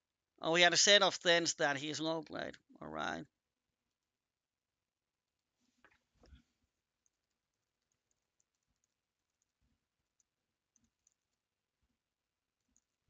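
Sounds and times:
keyboard typing: 7.0s - 11.5s, 12.6s - 13.0s.

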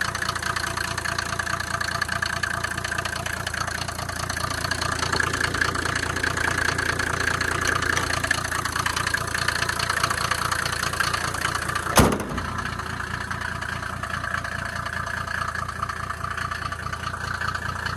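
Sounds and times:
diesel engine idling: 0.0s - 17.9s
car bonnet slamming: 11.7s - 13.6s.

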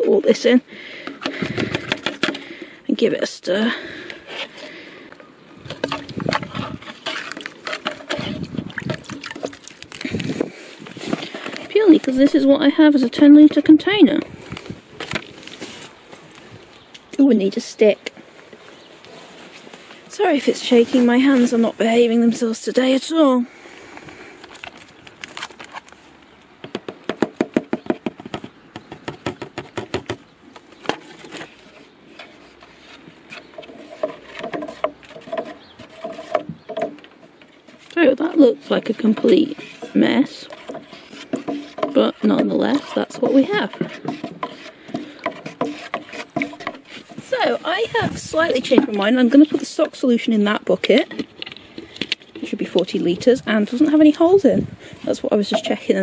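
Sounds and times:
water sloshing in watering can: 5.6s - 13.8s, 37.6s - 56.0s
stick knocking plastic can: 5.7s - 10.0s.

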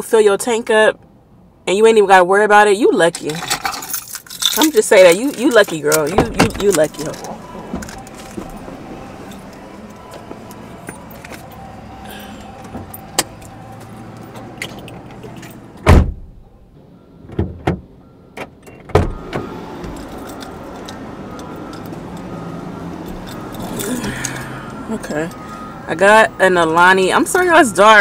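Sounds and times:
car door shutting: 12.6s - 16.5s, 17.2s - 21.9s.

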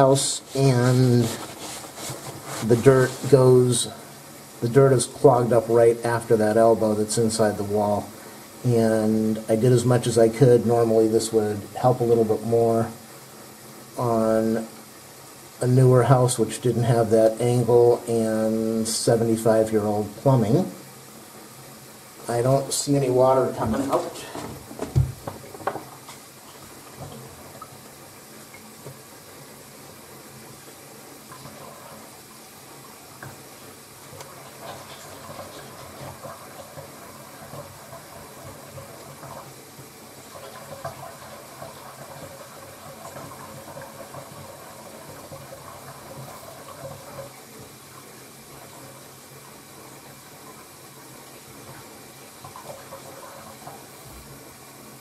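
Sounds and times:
tap water running into sink: 15.6s - 55.0s.

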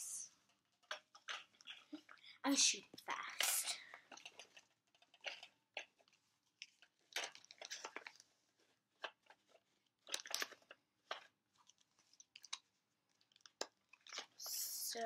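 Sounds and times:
plastic toy gun clicks and rattles: 0.8s - 2.0s, 3.2s - 8.2s, 9.0s - 11.3s.

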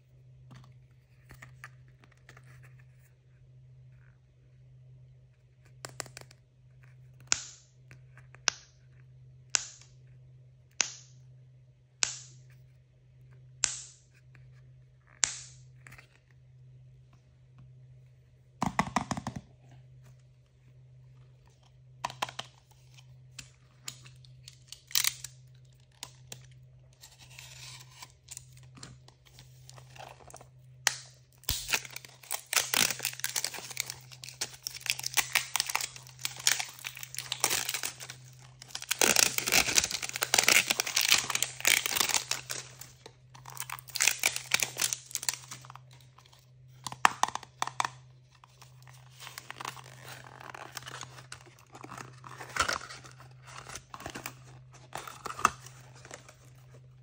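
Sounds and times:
packaging torn and crinkled: 23.4s - 57.0s.

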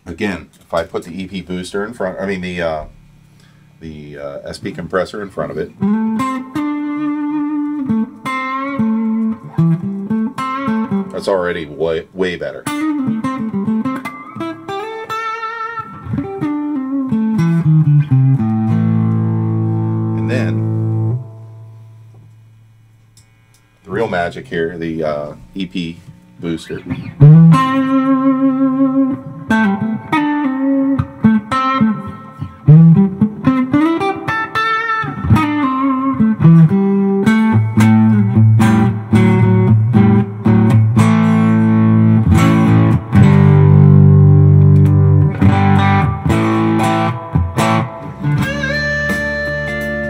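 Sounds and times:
overdriven electric guitar lead: 5.8s - 11.2s, 12.6s - 22.5s, 23.2s - 50.0s.

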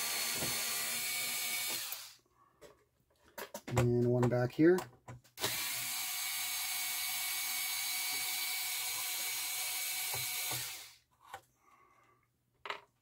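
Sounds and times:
electric screwdriver running: 0.0s - 2.2s, 5.4s - 11.0s.

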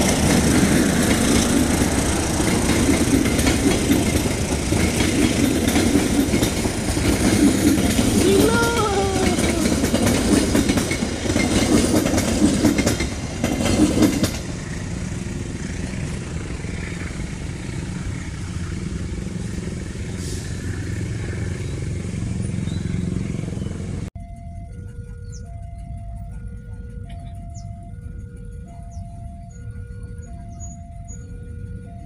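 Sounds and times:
train wheels clattering over rail joints: 0.0s - 8.3s, 9.3s - 14.9s
train rumble: 0.0s - 32.0s.

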